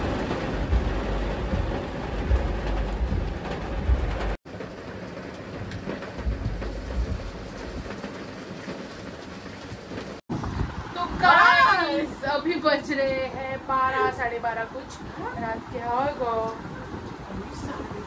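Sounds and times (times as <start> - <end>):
deep rumble: 0.0 - 4.7, 5.5 - 8.0
heavy rain pouring: 0.0 - 18.0.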